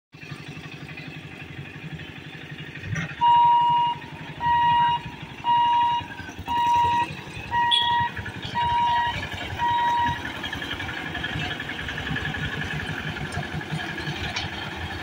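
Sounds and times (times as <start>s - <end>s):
motorcycle engines idling: 0.2s - 15.0s
level-crossing warning beeps: 3.2s - 10.4s.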